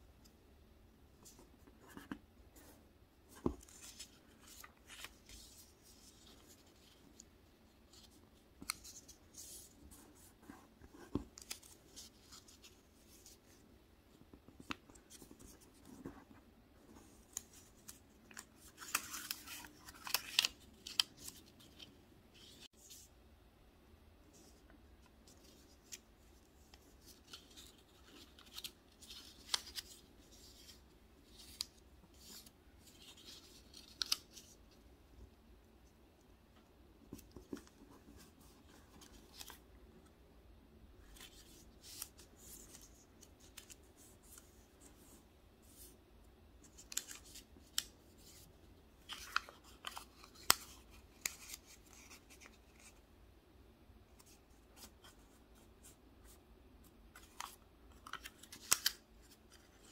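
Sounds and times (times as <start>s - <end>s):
paper folding rustles: 1.2s - 13.6s, 46.6s - 53.0s, 57.1s - 59.9s.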